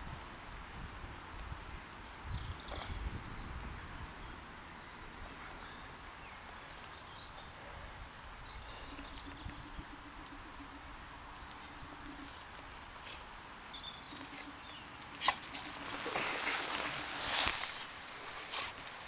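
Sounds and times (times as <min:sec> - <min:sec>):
dog paws running on grass: 0:11.4 - 0:19.0.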